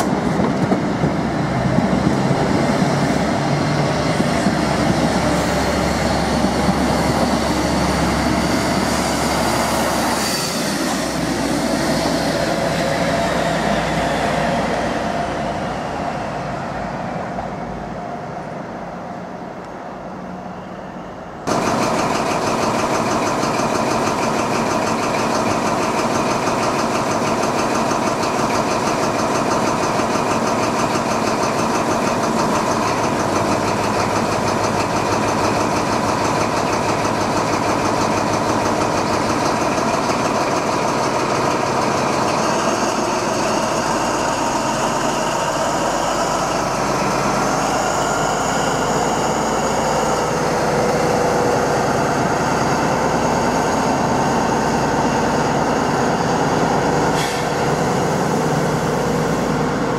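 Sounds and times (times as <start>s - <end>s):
diesel engine pulling away: 0.0s - 18.0s, 20.1s - 59.9s
diesel engine idling: 21.4s - 59.9s.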